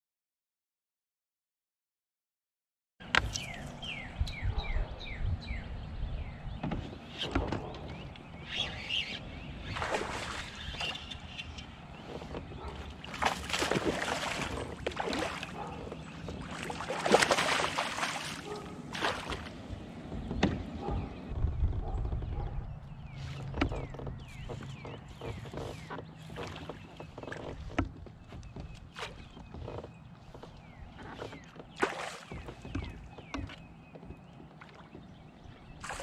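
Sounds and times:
water splashing around kayak: 6.6s - 36.0s.

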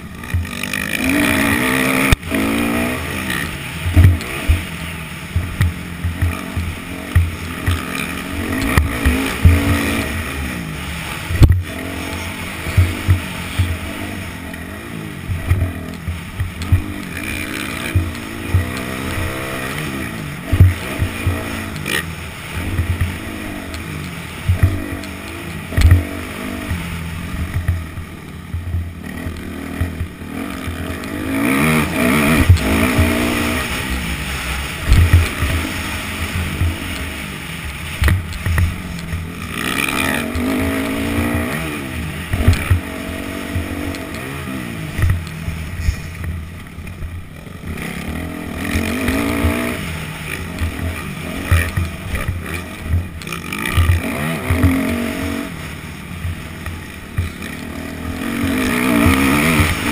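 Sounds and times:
sharp thumps: 0.0s - 47.8s
dirt bike engine revving: 0.0s - 59.9s.

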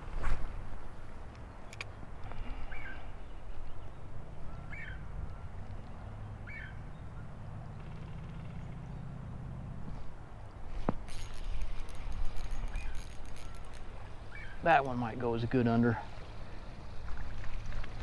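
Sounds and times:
fishing reel gears whirring: 10.9s - 14.6s
bird chirping: 11.1s - 14.8s.

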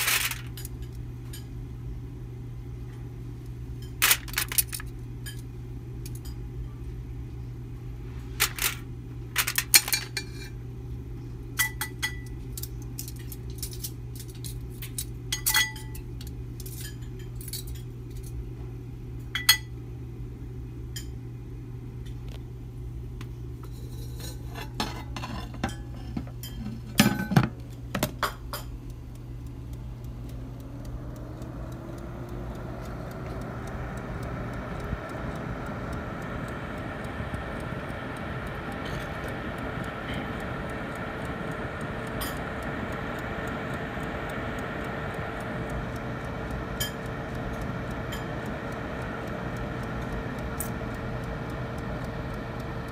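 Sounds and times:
steady low hum: 0.0s - 52.9s
metal tongs clinking on a pan: 11.6s - 16.0s
rising whine: 29.4s - 52.9s.

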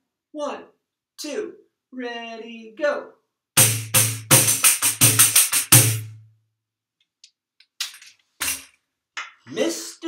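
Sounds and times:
tambourine struck by hand: 3.6s - 6.1s, 8.4s - 8.7s.

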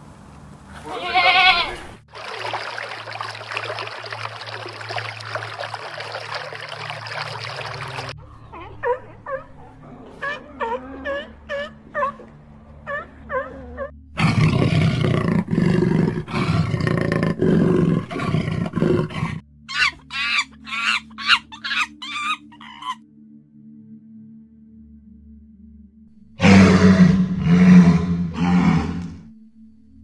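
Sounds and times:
big cat growling: 7.8s - 19.4s, 26.4s - 29.3s
short repeated animal calls: 19.7s - 23.0s.

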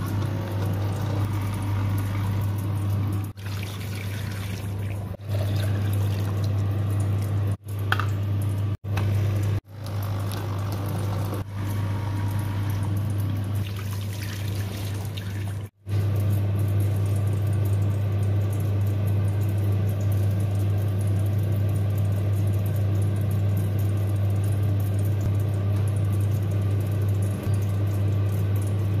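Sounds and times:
coffee machine pump humming: 0.0s - 29.0s
water pouring into container: 0.1s - 7.5s, 12.8s - 15.8s.

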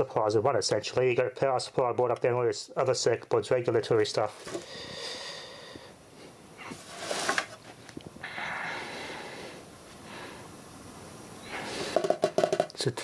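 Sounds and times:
person breathing noisily: 4.5s - 6.8s, 8.2s - 10.6s, 11.4s - 12.2s.

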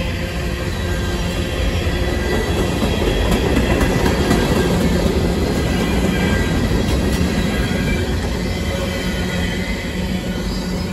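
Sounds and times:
train wheels rumbling on rail: 0.0s - 10.9s.

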